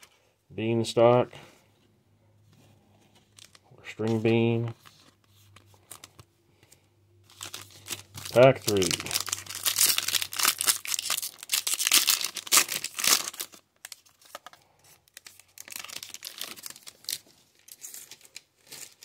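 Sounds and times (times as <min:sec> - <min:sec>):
cards rustling in wrapper: 0:02.9 - 0:19.0
foil pack tearing and crinkling: 0:07.3 - 0:14.5, 0:15.1 - 0:19.0.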